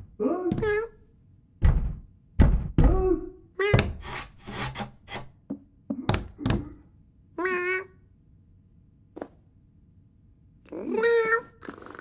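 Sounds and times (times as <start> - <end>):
scratching at door: 3.8 - 5.3
cartoon cat meowing: 7.4 - 8.0, 10.7 - 11.6.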